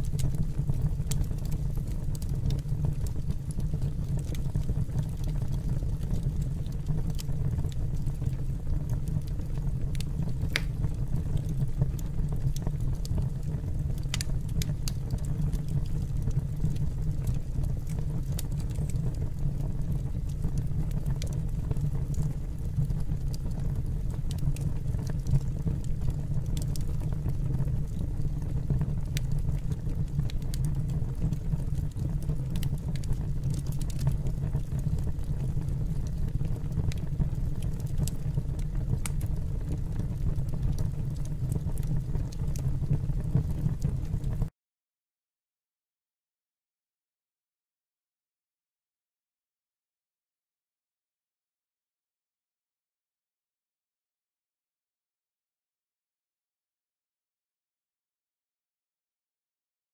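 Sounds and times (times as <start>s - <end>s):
fire crackles and pops: 0.0s - 44.5s
wood fire rumbling: 0.0s - 44.5s.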